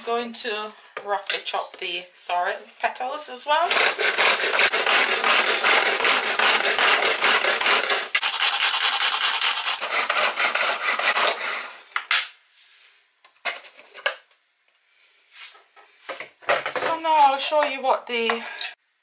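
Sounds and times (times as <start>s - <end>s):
hand chopper blades rasping: 8.2s - 9.8s.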